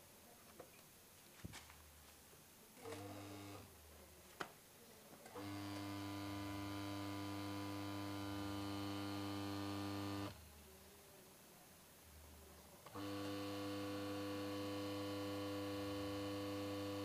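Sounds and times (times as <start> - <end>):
washing machine motor hum: 5.4 - 10.4, 12.9 - 17.0.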